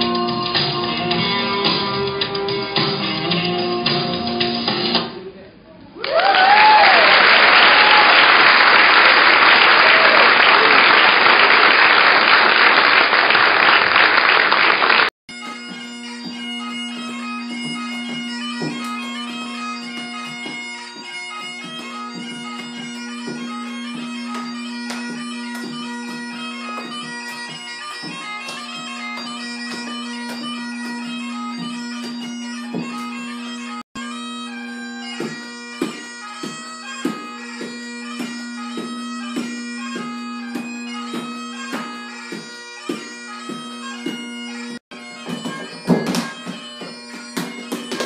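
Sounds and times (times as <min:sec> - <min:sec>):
bagpipe music: 0:00.0 - 0:04.9, 0:15.3 - 0:48.0
audience applauding: 0:06.0 - 0:15.1
audience cheering: 0:06.0 - 0:15.1
feet dancing on wooden floor: 0:15.3 - 0:33.8, 0:34.9 - 0:48.0.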